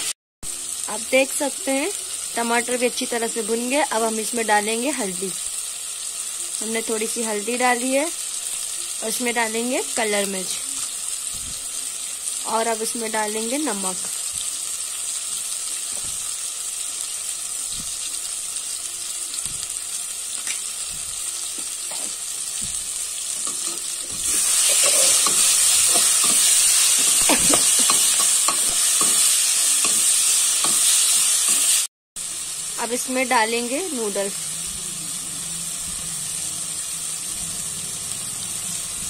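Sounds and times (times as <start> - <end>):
vegetables sizzling in a pan: 0.0 - 39.0
spatula scraping a pan: 23.3 - 31.8.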